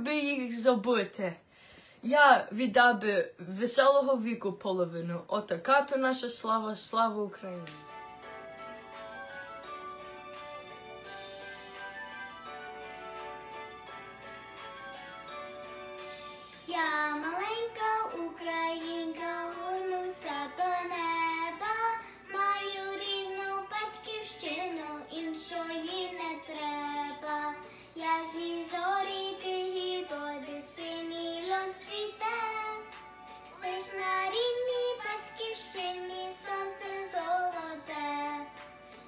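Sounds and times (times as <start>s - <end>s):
girl singing: 16.5s - 38.7s.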